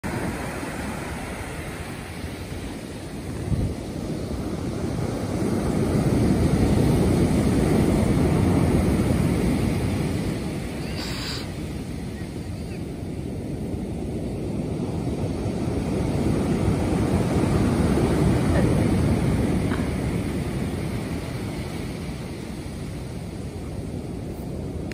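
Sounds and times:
waves breaking on pebble beach: 0.0s - 24.9s
wind rumbling on microphone: 0.0s - 24.9s.

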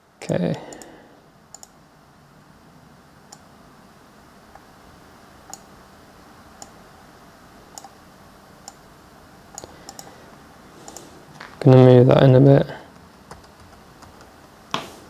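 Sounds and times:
low room hum: 0.0s - 15.0s
computer mouse clicks: 0.7s - 0.9s, 1.5s - 1.8s, 5.5s - 5.7s, 7.7s - 8.0s, 9.5s - 10.2s, 10.8s - 11.1s.

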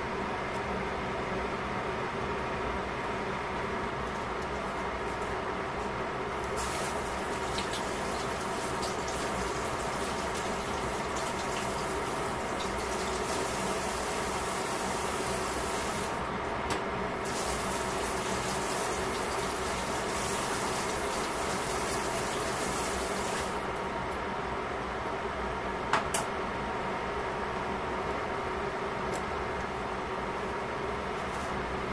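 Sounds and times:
pot simmering with bubbling hiss: 6.5s - 15.9s.

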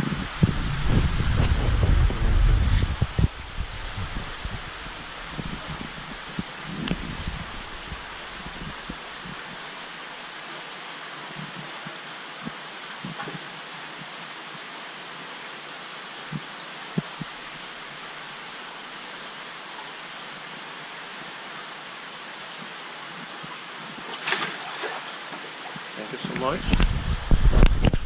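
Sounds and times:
flowing water rushing: 0.0s - 28.0s
water splashing: 23.9s - 27.7s.

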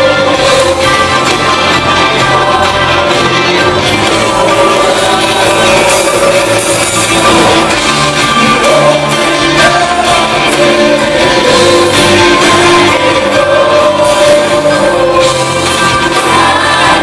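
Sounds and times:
live band playing loudly: 0.0s - 17.0s
singers singing over band: 0.0s - 17.0s.

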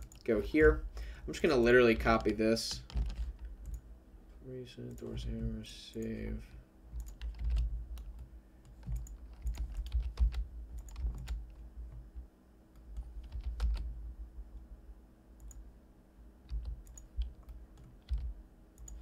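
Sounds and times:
faint steady hum: 0.0s - 19.0s
keyboard and mouse clicks: 2.1s - 3.8s, 7.0s - 12.0s, 16.5s - 19.0s.

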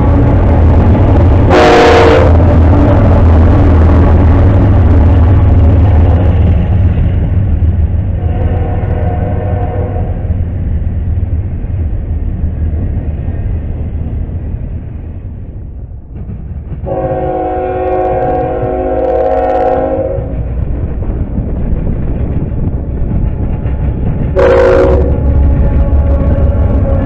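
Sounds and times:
locomotive engine rumbling: 0.0s - 27.0s
train wheels rumbling on rail: 0.0s - 27.0s
locomotive air horn chord: 1.5s - 2.4s, 8.2s - 10.2s, 16.9s - 20.3s, 24.4s - 27.0s.

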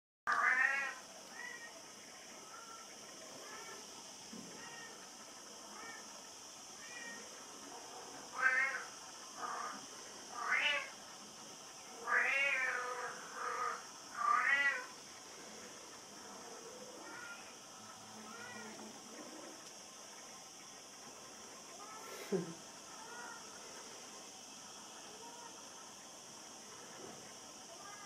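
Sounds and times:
kittens mewing: 8.4s - 9.8s, 12.0s - 15.0s.

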